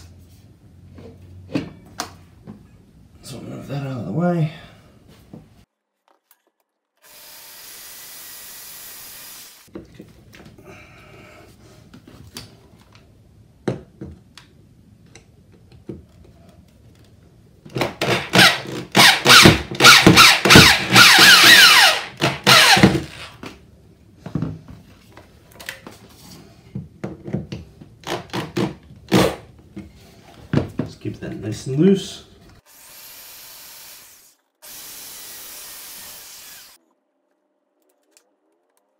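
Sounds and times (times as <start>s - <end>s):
electric drill drilling into wood: 7.0s - 9.7s, 18.0s - 23.4s, 32.7s - 36.8s.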